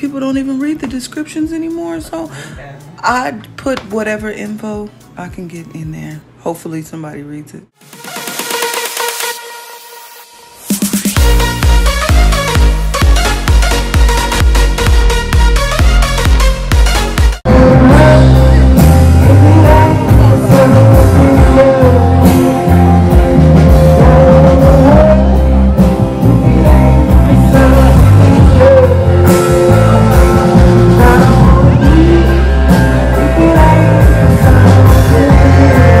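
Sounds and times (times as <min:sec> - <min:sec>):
drums: 0:10.5 - 0:36.0
electric guitar: 0:17.5 - 0:36.0
person singing: 0:17.5 - 0:36.0.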